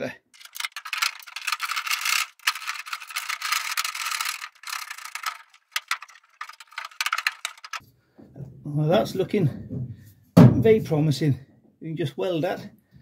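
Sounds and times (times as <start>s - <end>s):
steel plate scraping and rattling: 0.4s - 7.8s.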